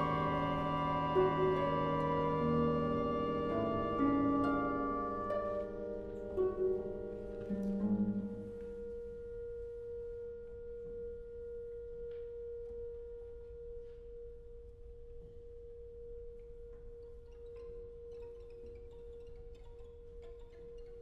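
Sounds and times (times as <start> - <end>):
chamber ensemble playing: 0.0 - 9.6.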